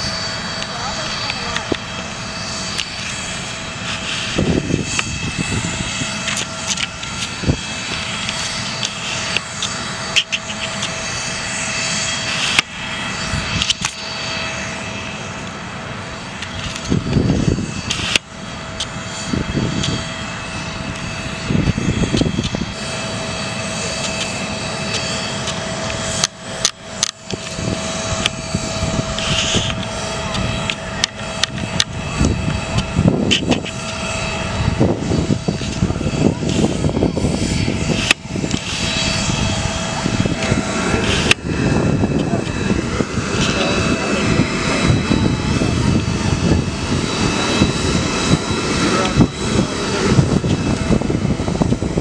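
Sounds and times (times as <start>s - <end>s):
aircraft engine whining: 0.0s - 52.0s
outdoor noise: 0.0s - 52.0s
voices: 0.5s - 3.2s, 22.8s - 50.9s.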